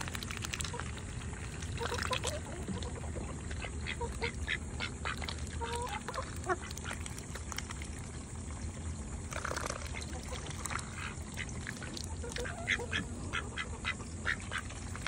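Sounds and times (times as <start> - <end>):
duck bill clicking in water: 0.0 - 8.3
duck quacking: 1.7 - 7.0, 12.2 - 15.0.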